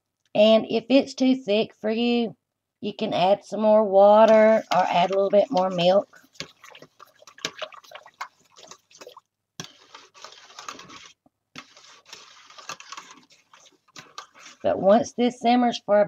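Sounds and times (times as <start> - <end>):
whisk wires clicking on pot: 4.3 - 15.1
whisk beating thick soup: 4.3 - 15.3.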